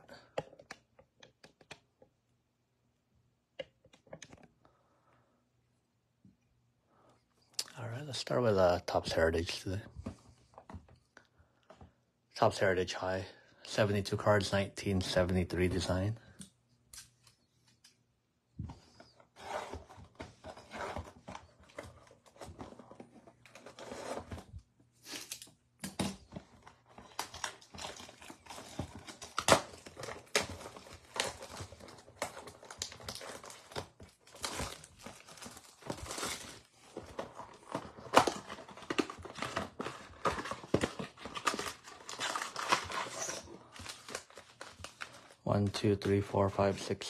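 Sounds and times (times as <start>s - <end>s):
packaging crinkling and tearing: 20.5s - 45.4s.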